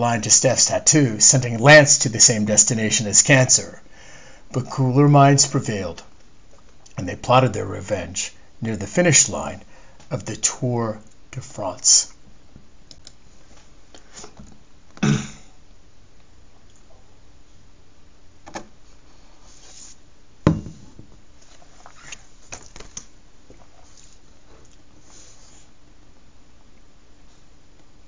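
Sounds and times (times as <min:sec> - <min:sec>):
sharp knock: 0:20.5 - 0:20.9.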